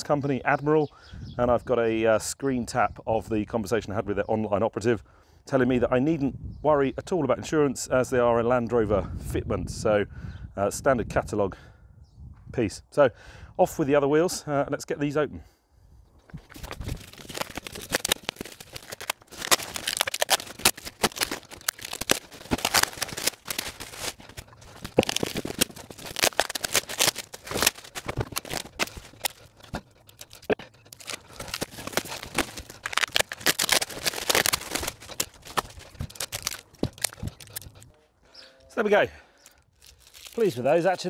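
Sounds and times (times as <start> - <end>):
plastic bag rustling and ripping: 16.3 - 37.9, 39.8 - 41.0
packing tape tearing: 16.4 - 37.9, 39.8 - 40.6.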